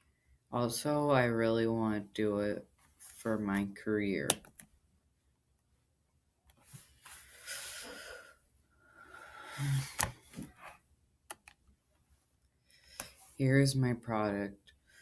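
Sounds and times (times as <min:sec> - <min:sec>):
person breathing hissing breaths: 0:07.1 - 0:10.0.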